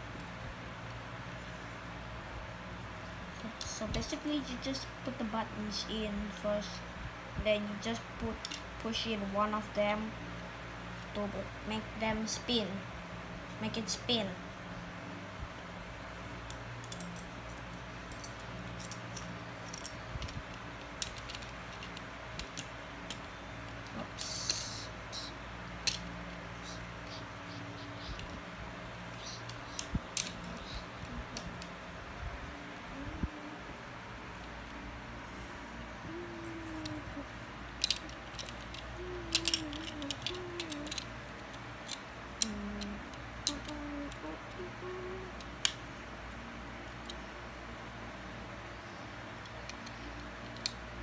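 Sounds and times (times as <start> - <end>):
steady low hum: 0.0 - 51.0
plastic bricks clicking: 16.5 - 24.7, 37.8 - 44.3.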